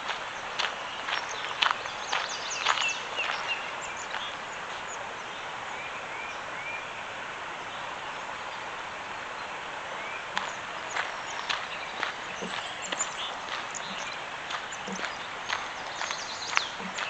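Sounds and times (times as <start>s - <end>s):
river rushing over riffle: 0.0s - 17.0s
bird chirps: 0.6s - 5.0s, 10.0s - 17.0s.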